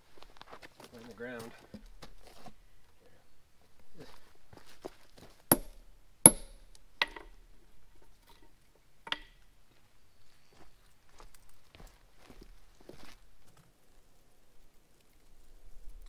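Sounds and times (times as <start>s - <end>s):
metal wedges clanking: 5.5s - 7.4s.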